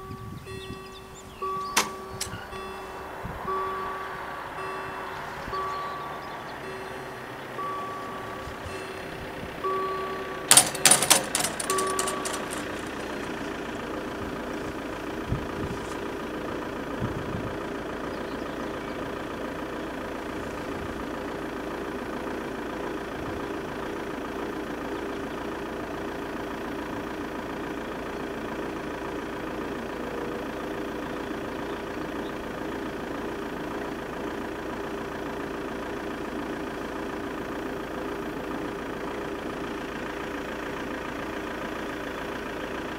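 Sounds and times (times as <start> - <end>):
bell strikes: 0.0 - 13.3
intermittent electronic warning tone: 0.0 - 13.4.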